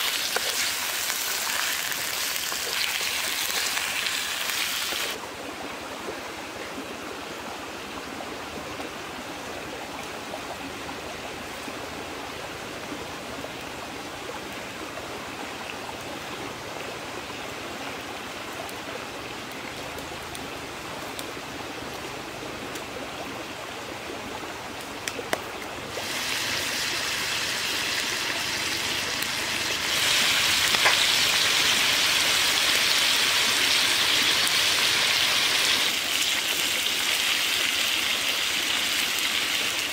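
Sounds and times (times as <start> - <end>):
meat frying in oil: 0.0 - 5.2, 25.9 - 39.9.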